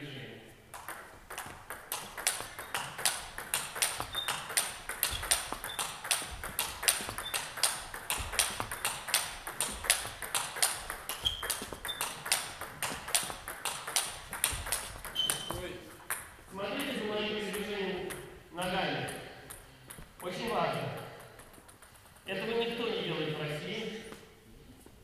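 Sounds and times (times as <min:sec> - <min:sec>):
table tennis ball clicking: 0:00.7 - 0:16.3, 0:19.1 - 0:22.3.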